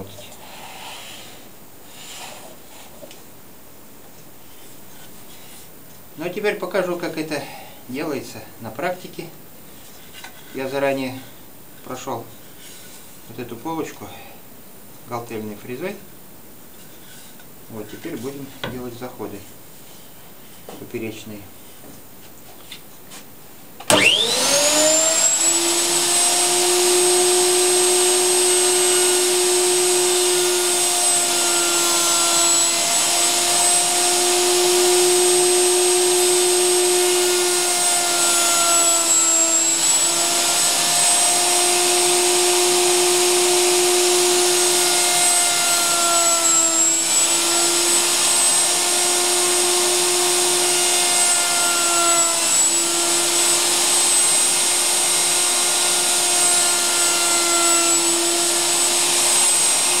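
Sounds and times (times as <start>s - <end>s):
router whining: 23.8s - 60.0s.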